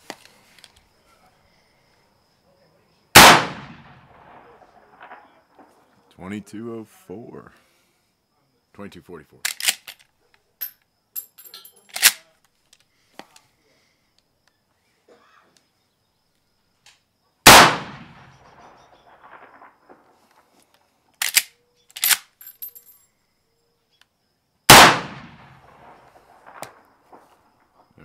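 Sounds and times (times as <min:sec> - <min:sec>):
rifle shots with echo: 0:03.2 - 0:05.4, 0:17.4 - 0:20.0, 0:24.7 - 0:26.8.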